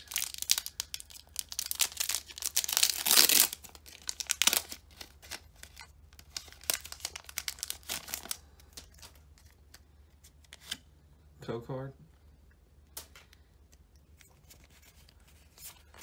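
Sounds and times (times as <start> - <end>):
foil wrapper tearing and crinkling: 0.0 - 9.5.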